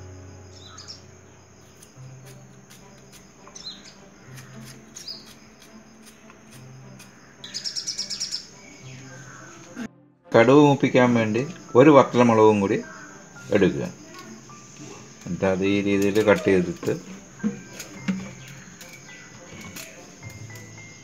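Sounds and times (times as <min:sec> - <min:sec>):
small birds chirping: 0:00.4 - 0:09.8, 0:11.3 - 0:21.0
bird trilling: 0:00.5 - 0:01.1, 0:07.1 - 0:09.8, 0:12.4 - 0:15.1, 0:16.2 - 0:21.0.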